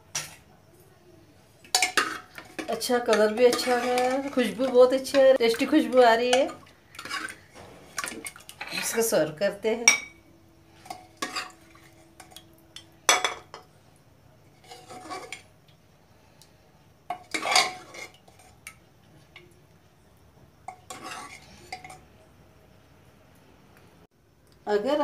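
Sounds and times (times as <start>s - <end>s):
metal ladle scraping a pot: 1.7s - 4.8s, 7.0s - 9.1s, 10.8s - 12.4s, 14.6s - 15.5s, 17.2s - 18.6s, 20.7s - 22.0s.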